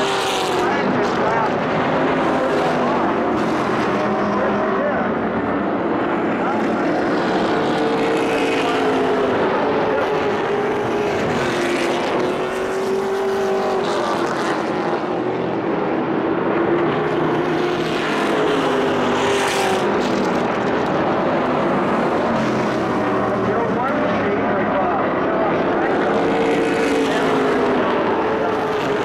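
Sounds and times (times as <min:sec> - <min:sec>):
race truck engines passing: 0:00.0 - 0:29.0.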